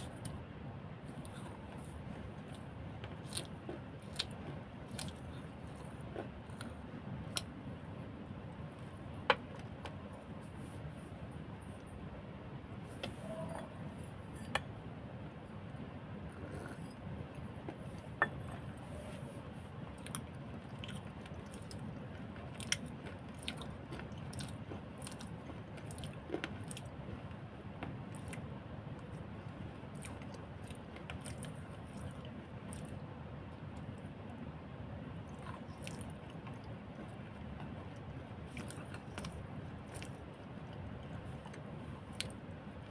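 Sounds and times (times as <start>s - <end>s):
low background noise: 0.0s - 42.9s
chewing food: 1.1s - 7.8s, 19.9s - 34.4s, 35.1s - 42.9s.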